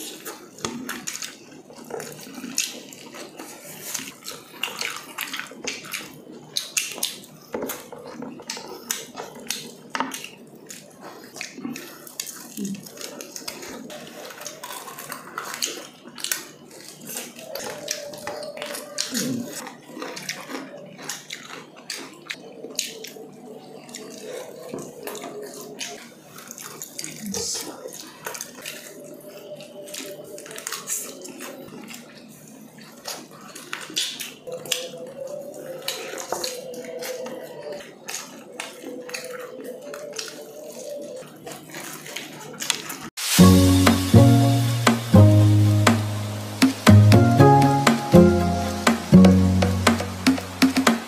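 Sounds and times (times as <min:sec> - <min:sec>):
wet chewing and lip-smacking: 0:00.0 - 0:45.1.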